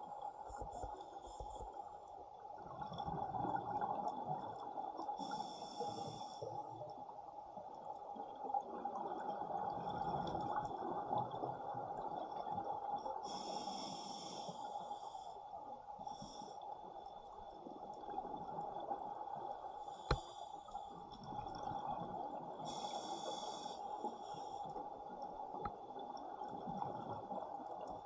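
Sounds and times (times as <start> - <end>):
exhaled bubbles underwater: 2.6 - 5.1, 8.2 - 13.4, 20.9 - 23.4, 24.8 - 28.0
scuba regulator breathing: 5.2 - 6.5, 13.2 - 15.4, 19.9 - 20.9, 22.6 - 24.7
high hiss: 22.7 - 23.8.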